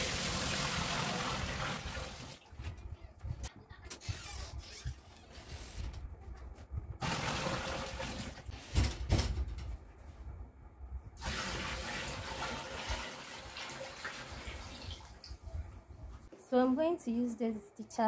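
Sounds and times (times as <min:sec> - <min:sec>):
water pouring into tub: 0:00.0 - 0:02.4, 0:07.0 - 0:08.4, 0:11.2 - 0:15.3.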